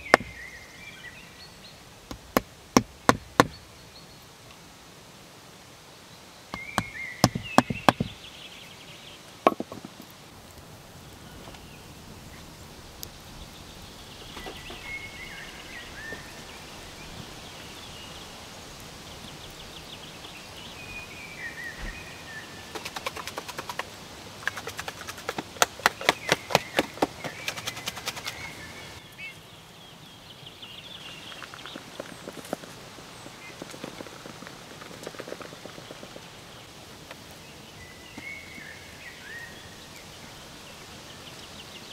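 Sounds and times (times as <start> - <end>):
hatchet knocking nails: 0.0 - 0.3, 2.1 - 3.6, 6.5 - 8.2, 9.5 - 10.0
birds chirping: 0.0 - 4.4, 6.1 - 41.9.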